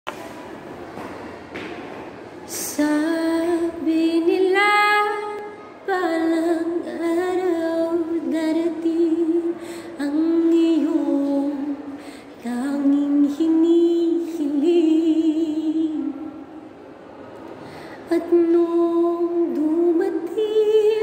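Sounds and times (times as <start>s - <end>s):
faint room noise: 0.0s - 21.0s.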